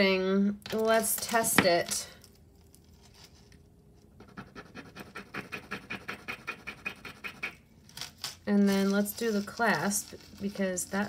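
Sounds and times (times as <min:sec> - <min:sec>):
jewelry scratching on stone: 0:04.2 - 0:11.0.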